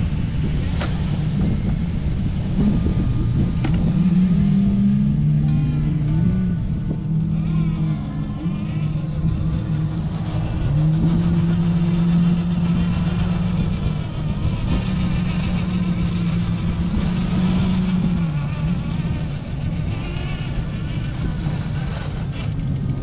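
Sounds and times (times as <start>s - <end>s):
toy car electric motor whining: 7.2s - 23.0s.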